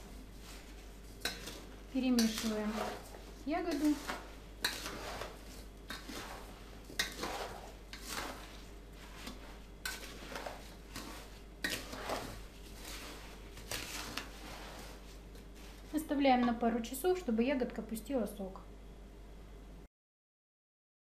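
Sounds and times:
sugared berries scraping and rustling: 0.0s - 16.6s.

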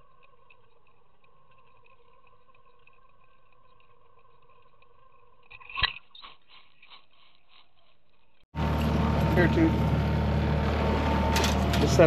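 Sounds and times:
boat motor humming: 8.6s - 12.0s.

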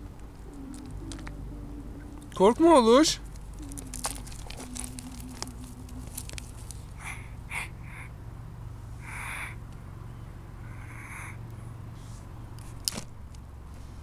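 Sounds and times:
low steady rumble: 0.0s - 14.0s
tortoise hissing: 3.5s - 9.7s, 10.5s - 12.4s.

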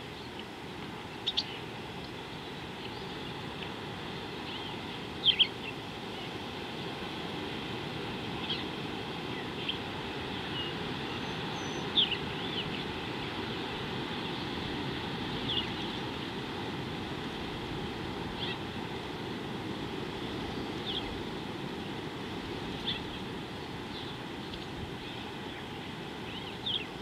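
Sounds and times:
birds chirping: 1.2s - 2.1s, 10.4s - 12.9s, 23.9s - 27.0s.

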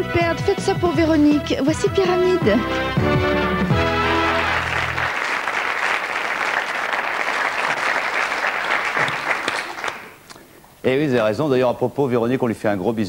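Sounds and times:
audience applauding: 3.6s - 10.2s.

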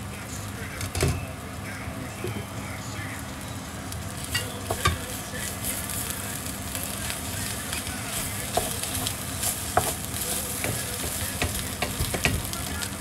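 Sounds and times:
food sizzling in a pan: 0.0s - 13.0s
utensil clicking against pan: 7.7s - 13.0s.

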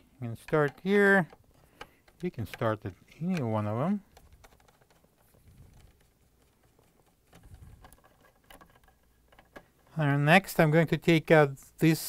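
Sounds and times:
screwdriver scratching and clicking: 4.1s - 10.0s.

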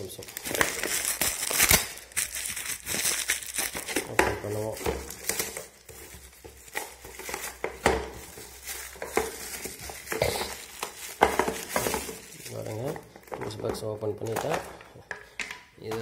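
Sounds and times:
plastic clicks and knocks: 13.2s - 16.0s.

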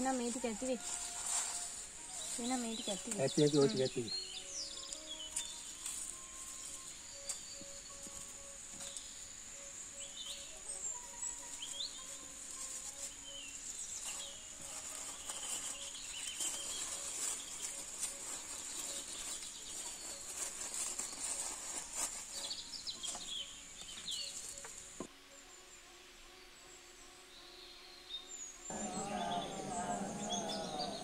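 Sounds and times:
paper being folded: 14.1s - 23.1s
birds chirping: 27.4s - 31.0s
night ambience: 28.5s - 31.0s.

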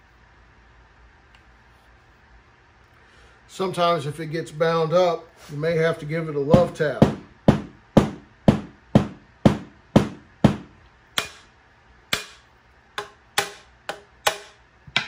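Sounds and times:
mallet knocking on metal tube: 6.6s - 11.4s, 12.1s - 12.4s, 13.0s - 15.0s.

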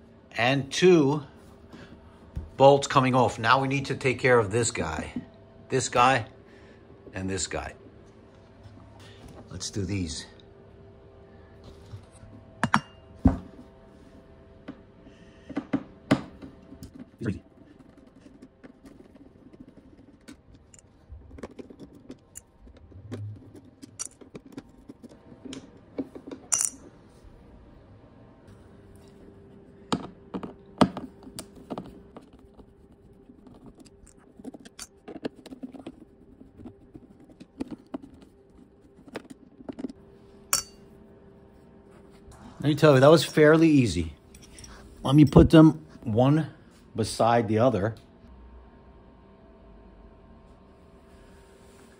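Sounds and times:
faint steady hum: 0.0s - 51.9s.

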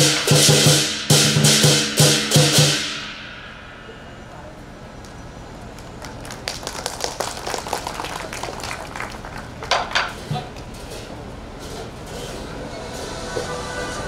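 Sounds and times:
small audience clapping: 5.7s - 10.1s.

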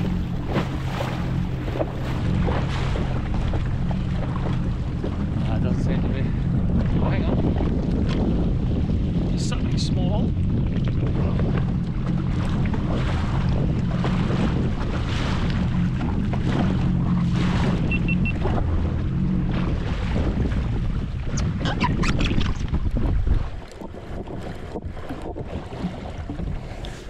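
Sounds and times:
jet ski engine idling: 0.0s - 21.2s
wind and water noise: 0.0s - 27.0s
short high beeps: 17.8s - 18.4s.

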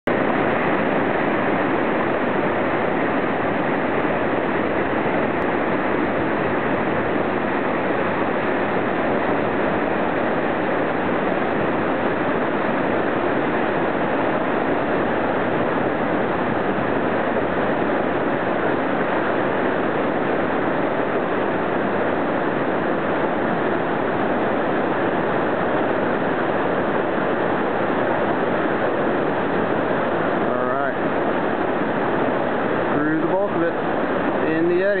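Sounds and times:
whitewater rapids rushing: 0.1s - 35.0s.

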